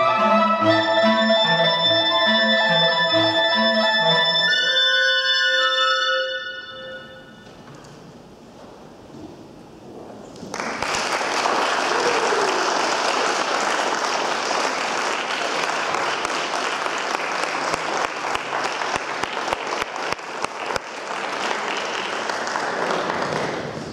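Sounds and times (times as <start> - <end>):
audience applauding: 10.4 - 23.9.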